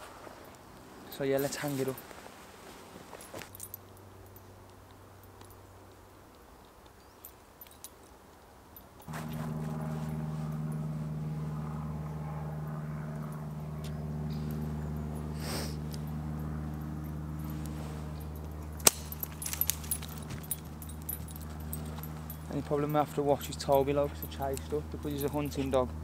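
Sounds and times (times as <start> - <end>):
light clicks and rattles: 3.1 - 9.5, 15.9 - 26.0
propeller aircraft droning overhead: 9.1 - 26.0.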